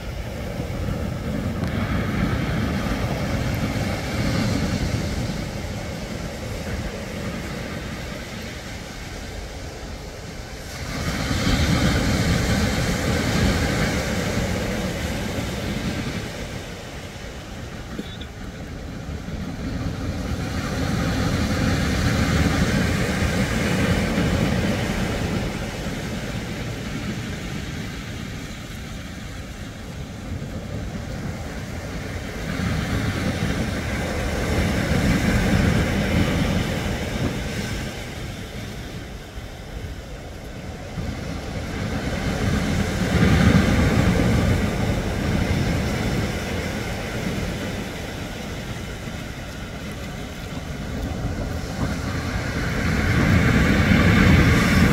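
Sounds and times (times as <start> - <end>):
surf washing up pebble beach: 0.0 - 54.9.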